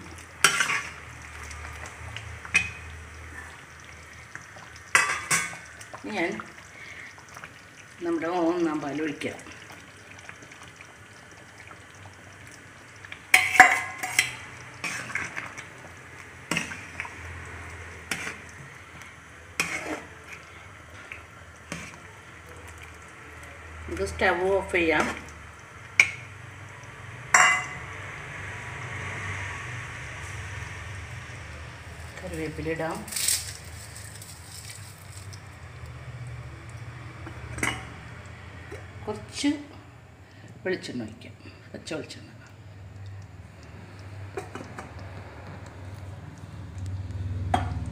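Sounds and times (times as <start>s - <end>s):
metal spatula scraping a metal pot: 0.4s - 1.0s, 13.3s - 15.4s, 19.6s - 20.1s.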